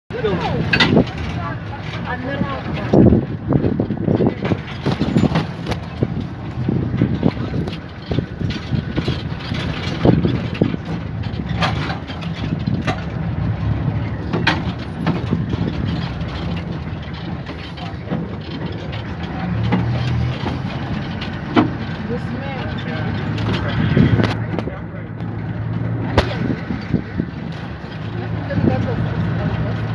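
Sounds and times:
vehicle engine rumbling: 0.1 - 29.9
vehicle knocks and rattles: 0.1 - 29.9.

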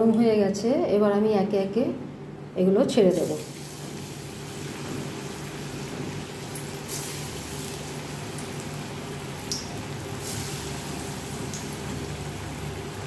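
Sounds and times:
food deep-frying in oil: 3.1 - 13.0.

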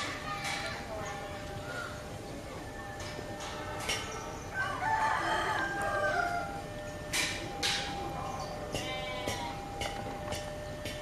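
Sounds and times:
rooster crowing: 4.5 - 6.8.

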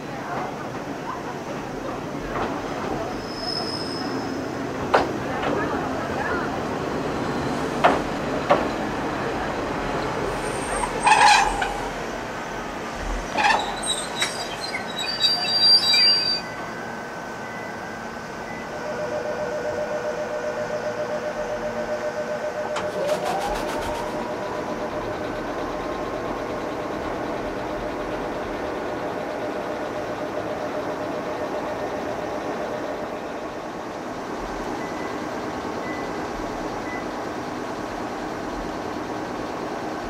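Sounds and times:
fast-pulsing train equipment hum: 4.4 - 40.0
short high beep: 14.8 - 16.5.

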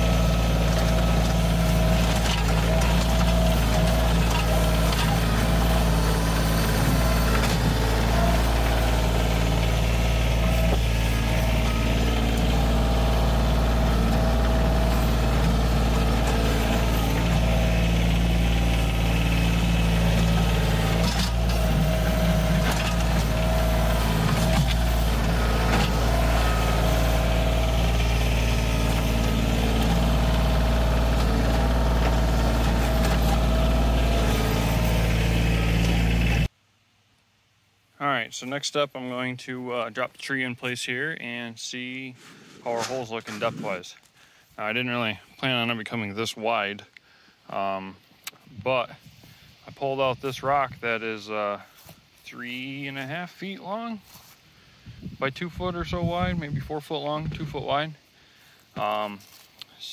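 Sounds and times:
tractor diesel engine running: 0.0 - 36.6
bucket scraping dirt and rock: 0.1 - 35.9, 42.1 - 44.0.

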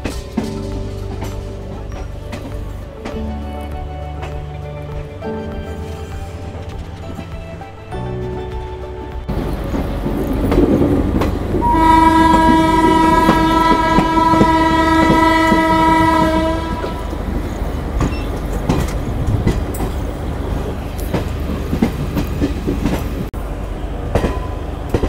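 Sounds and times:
train wheels clattering on rail joints: 0.0 - 25.0
train horn blast: 11.5 - 17.5.

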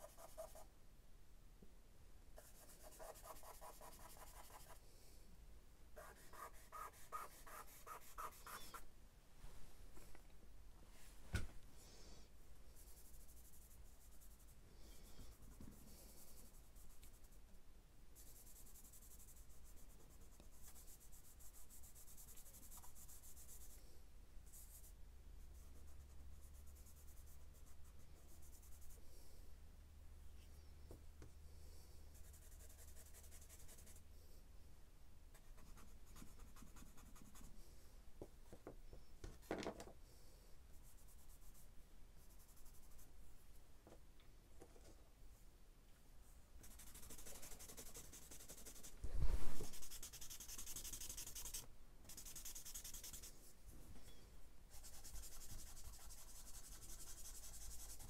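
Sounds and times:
charcoal scratching on paper: 0.0 - 0.7, 2.4 - 4.8, 6.0 - 8.8, 32.1 - 34.0, 46.6 - 49.0, 49.6 - 53.3, 54.7 - 58.0
hand rubbing paper: 6.0 - 8.8, 46.6 - 53.4.

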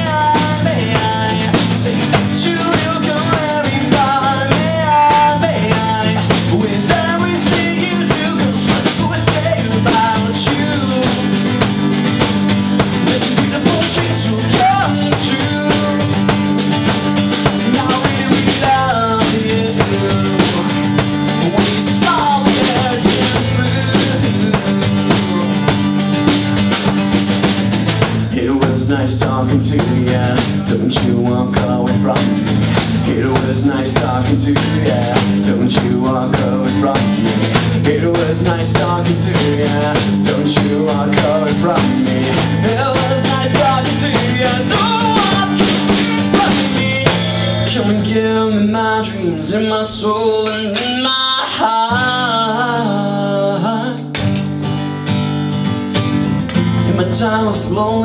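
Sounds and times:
drums: 0.0 - 52.6, 53.9 - 58.0
man singing: 0.0 - 54.4, 56.5 - 58.0
strummed acoustic guitar: 0.0 - 58.0.

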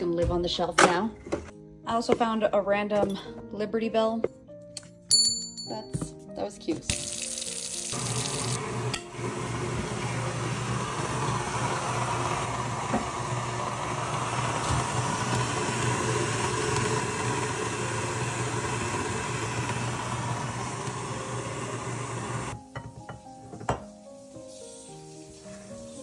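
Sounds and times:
stand mixer grinding grain: 7.9 - 22.6.

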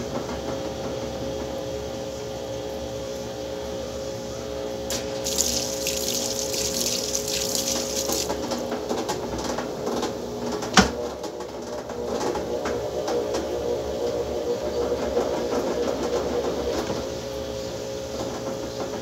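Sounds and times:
washing machine tub whirling: 0.0 - 19.0
water rushing and hissing: 4.9 - 8.5.

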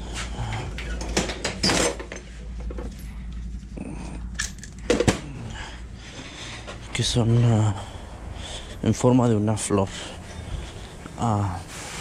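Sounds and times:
metal tools clinking in drawer: 1.0 - 3.0, 4.4 - 5.1.

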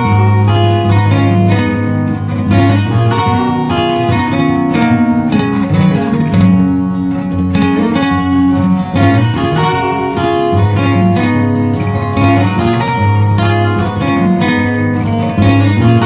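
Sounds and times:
guitar instrumental music: 0.0 - 16.0.

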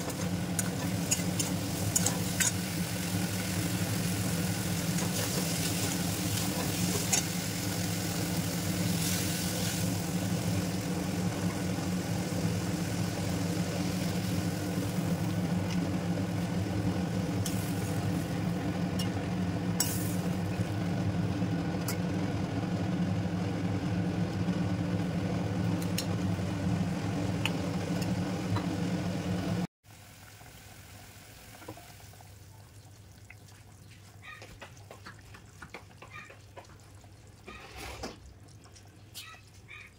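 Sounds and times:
vegetables sizzling in a pan: 0.0 - 15.6, 29.9 - 32.8
curry bubbling: 30.3 - 37.4.

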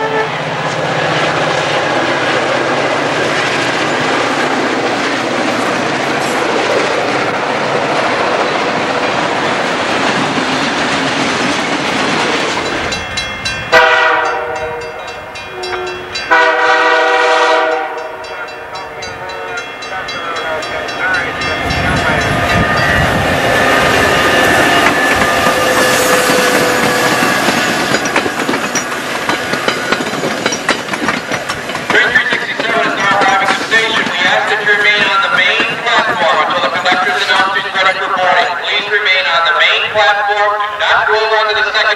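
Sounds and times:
locomotive air horn blasts: 0.0 - 0.5, 13.7 - 15.0, 15.6 - 18.4
freight cars rumbling on rails: 0.0 - 41.9
passenger train passing: 0.0 - 41.9
wheels clicking over rail joints: 24.6 - 38.2.

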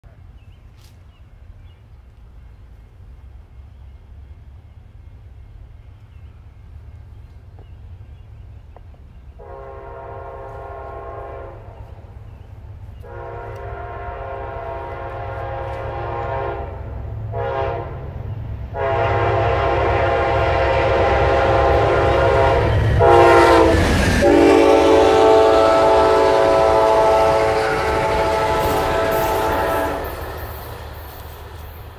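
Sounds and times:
train rumble: 0.0 - 31.9
train horn blasts: 9.4 - 12.1, 13.0 - 30.4.

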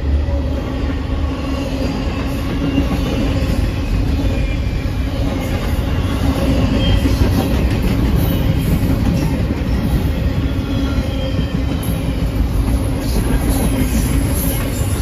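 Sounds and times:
train wheels rumbling on rail: 0.0 - 15.0
faint high wheel squeal: 1.3 - 7.6, 9.8 - 13.2.

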